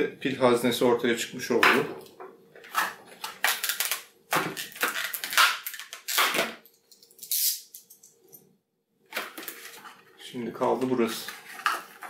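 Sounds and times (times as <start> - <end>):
plastic toy scraping and rustling: 11.0 - 12.0.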